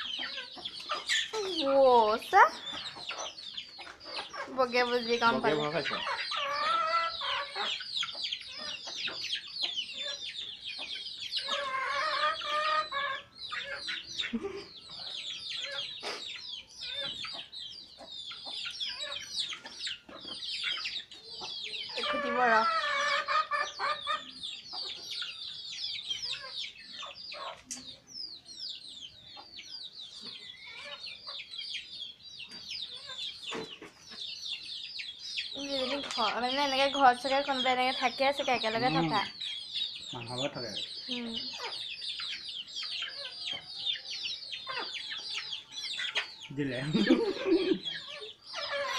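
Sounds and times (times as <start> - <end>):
young chickens peeping: 0.0 - 48.9
longer lower chicken calls: 11.4 - 17.3.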